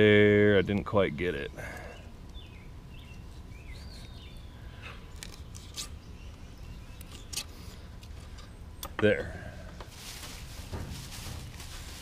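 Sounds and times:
faint bird chirps: 0:01.6 - 0:07.4.

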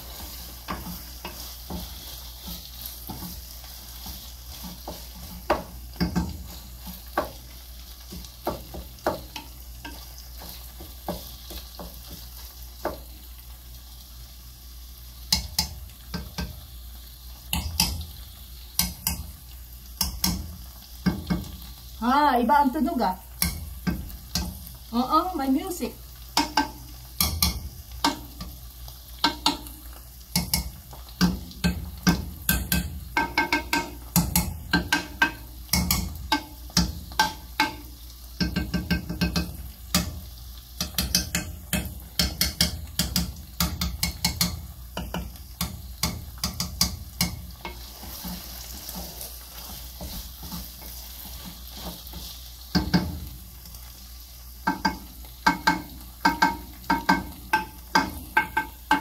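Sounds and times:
wooden spoon scraping a pot: 0:00.0 - 0:07.4, 0:46.3 - 0:52.5
meat sizzling in a pot: 0:00.0 - 0:59.0.

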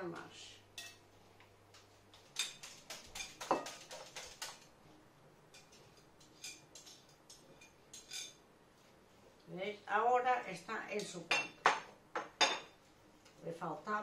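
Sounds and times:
fork clinking against bowl: 0:05.6 - 0:08.4.

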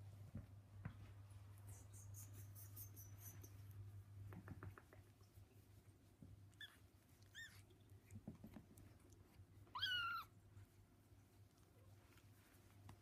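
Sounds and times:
kitten mewing: 0:09.7 - 0:10.3.

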